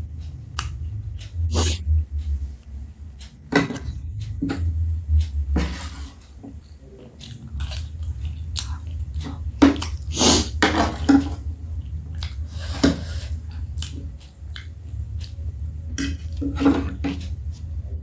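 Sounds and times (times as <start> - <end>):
steady low hum: 0.0 - 18.0
person chewing: 5.8 - 17.7.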